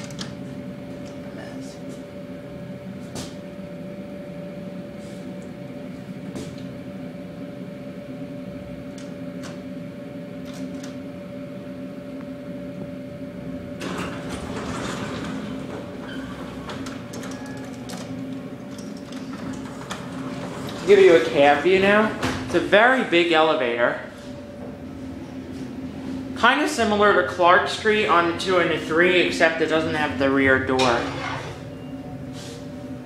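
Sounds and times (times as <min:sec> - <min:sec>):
elevator hum: 0:00.0 - 0:33.0
elevator doors sliding open: 0:13.7 - 0:23.0, 0:29.2 - 0:33.0.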